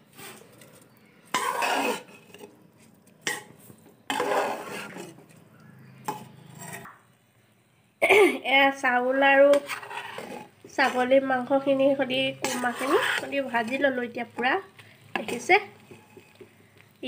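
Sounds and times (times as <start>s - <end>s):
steel spatula scraping pot: 0.1s - 2.6s, 3.2s - 5.4s, 6.0s - 6.9s, 9.2s - 16.5s.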